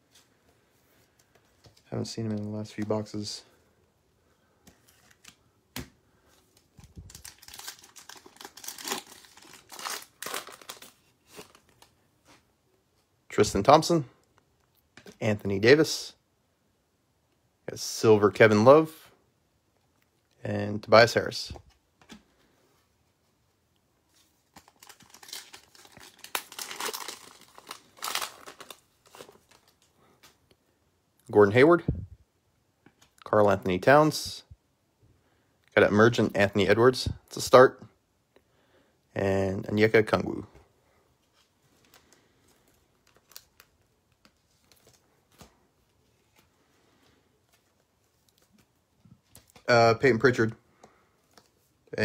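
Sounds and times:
foil wrapper crinkling and tearing: 6.7s - 11.9s, 24.5s - 29.8s.

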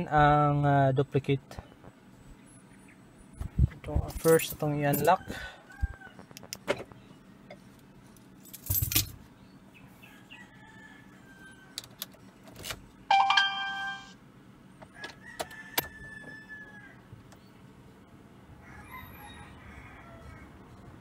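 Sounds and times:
rooster crowing: 5.0s - 6.3s, 10.0s - 11.9s, 14.9s - 17.1s, 18.6s - 21.0s.

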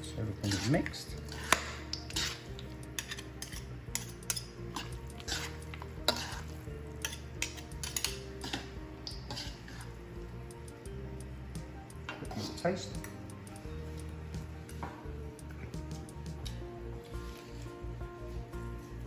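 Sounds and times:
spoons clinking in metal bowl: 0.4s - 9.8s.

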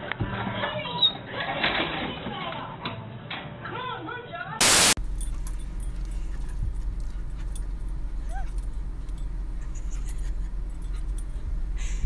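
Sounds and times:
faint jingling clicks: 5.0s - 12.0s
low rumble inside car: 5.0s - 12.0s.

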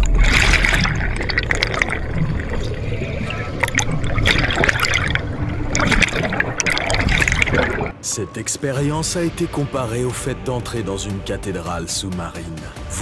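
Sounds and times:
underwater air bubbling: 0.0s - 8.0s.

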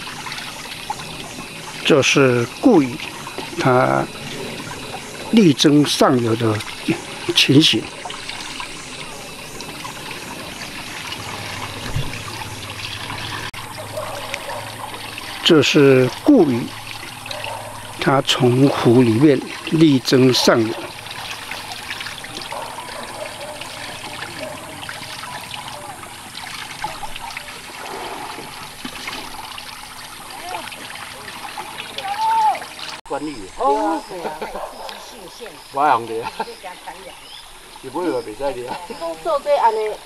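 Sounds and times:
water running down channel: 0.0s - 40.0s.

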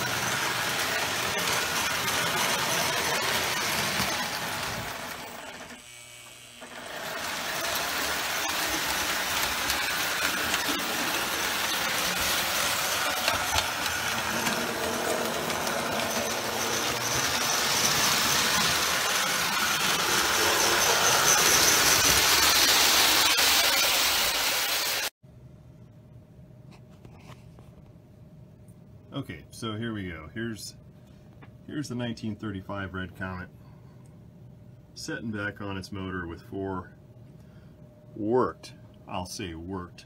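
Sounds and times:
toy train wheels rattling on rails: 0.0s - 5.8s, 6.6s - 25.1s
toy train motor and gears whirring: 0.0s - 25.1s.

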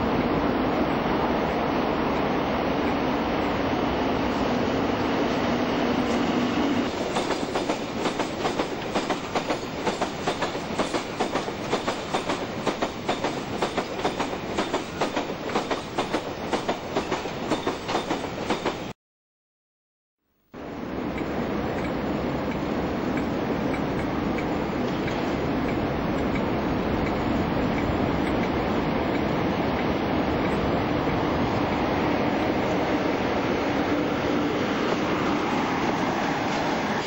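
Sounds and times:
diesel locomotive passing: 0.0s - 18.9s, 20.6s - 37.0s
wheels clickety-clack on track: 6.8s - 18.9s, 21.1s - 33.0s.

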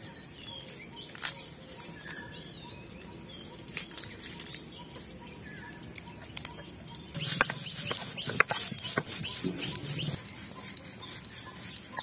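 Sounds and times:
stone roller scraping: 7.2s - 12.0s.

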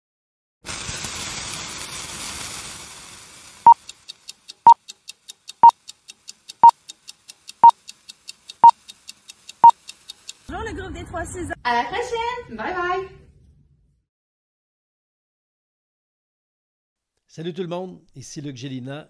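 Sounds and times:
quick ticks: 3.7s - 10.5s.

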